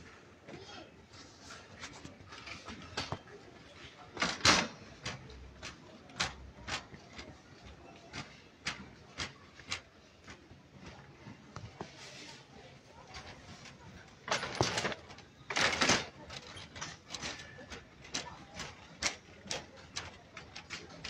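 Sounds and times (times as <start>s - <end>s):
shopping cart rattling: 1.3s - 21.0s
cart clattering: 13.1s - 21.0s.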